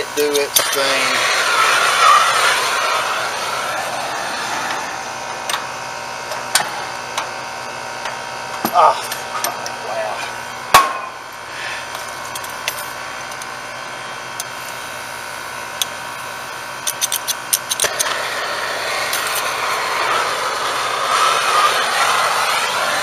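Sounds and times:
torch flame hissing: 0.0 - 8.5, 9.2 - 23.0
sharp clicks: 16.8 - 18.1.

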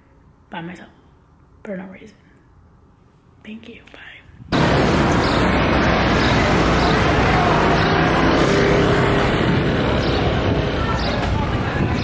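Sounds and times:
passing cars and engines: 4.5 - 12.0.

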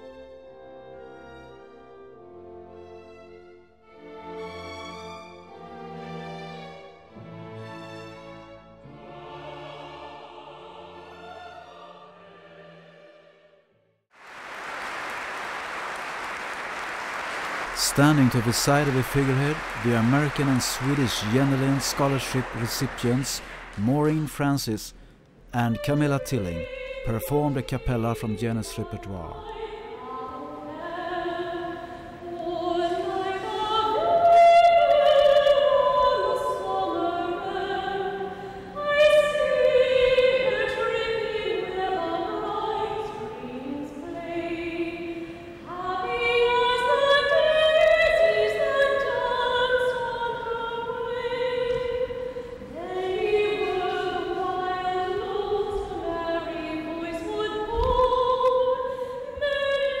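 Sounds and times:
singer breathing: 24.9 - 25.4, 52.2 - 52.7
woman singing opera unaccompanied: 25.6 - 60.0.

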